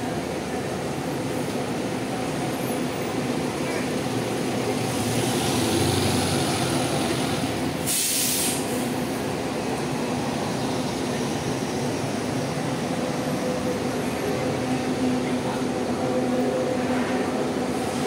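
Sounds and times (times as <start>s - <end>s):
diesel bus engine droning: 0.0s - 18.0s
air hiss: 7.8s - 8.9s.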